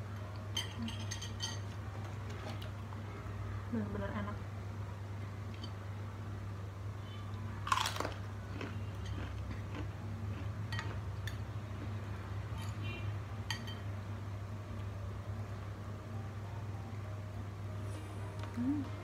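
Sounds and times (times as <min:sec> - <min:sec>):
steady low hum: 0:00.0 - 0:19.0
metal spoon clinking on ceramic bowl: 0:00.5 - 0:01.8, 0:13.4 - 0:13.9
crunchy bite and chewing: 0:07.6 - 0:11.0.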